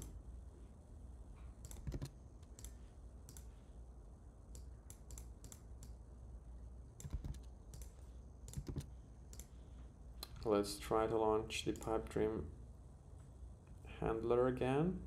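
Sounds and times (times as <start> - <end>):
keyboard and mouse clicks: 1.6 - 3.5, 4.5 - 6.0, 7.0 - 9.6.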